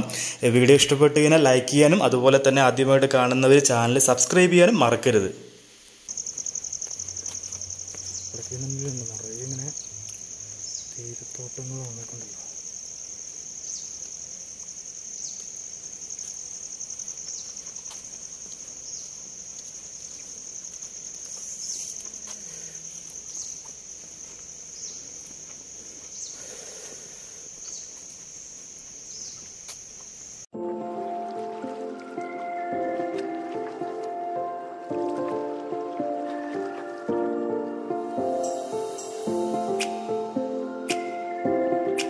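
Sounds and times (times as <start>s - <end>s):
high-pitched insect trill: 6.1s - 30.5s, 38.1s - 40.3s.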